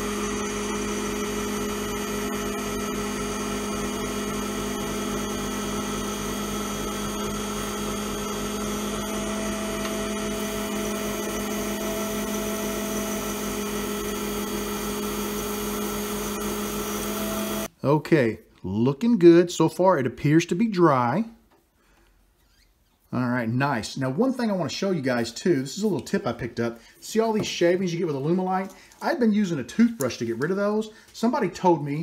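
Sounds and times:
lathe humming: 0.0 - 17.7
turning tool cutting plastic: 5.0 - 17.7.

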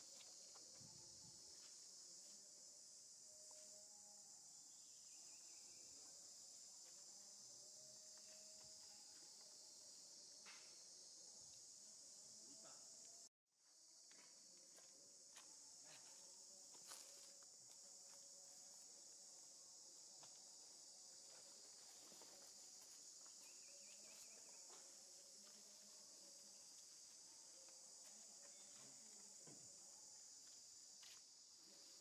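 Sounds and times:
high-pitched insect drone: 0.0 - 32.0.

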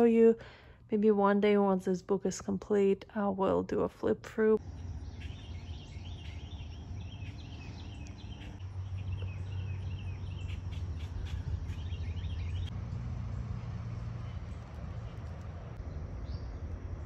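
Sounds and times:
steady low rumble: 3.0 - 17.0
high chirping call: 4.6 - 12.7.

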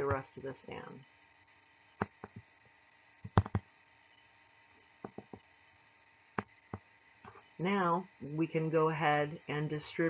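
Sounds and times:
input device clicks and taps: 2.0 - 2.5, 3.2 - 3.7, 5.0 - 5.4.

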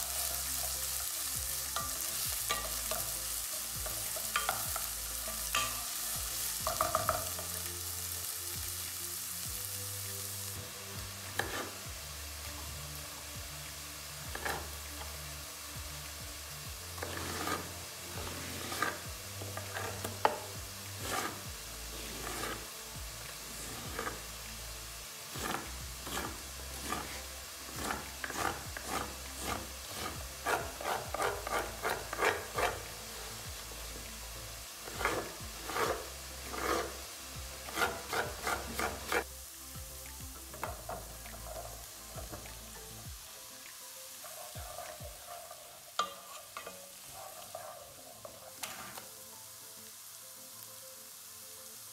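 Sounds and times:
vegetables sizzling in a pan: 0.0 - 51.9.

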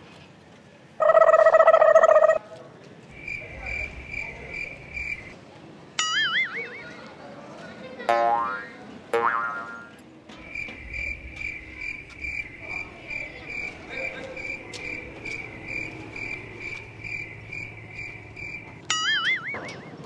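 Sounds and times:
cricket chirping: 3.1 - 5.4, 10.4 - 19.9.

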